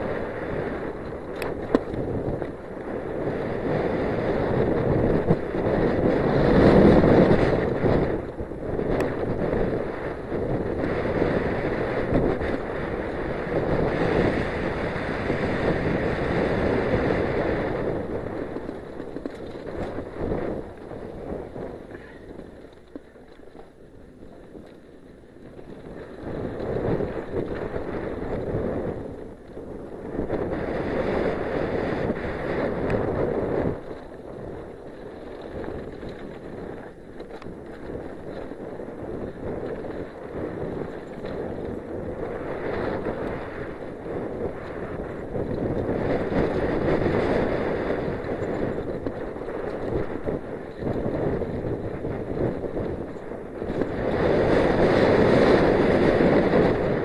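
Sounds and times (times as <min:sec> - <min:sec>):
wind rushing over microphone: 0:00.0 - 0:57.0
tyres rolling over gravel: 0:16.0 - 0:29.5, 0:32.4 - 0:55.2.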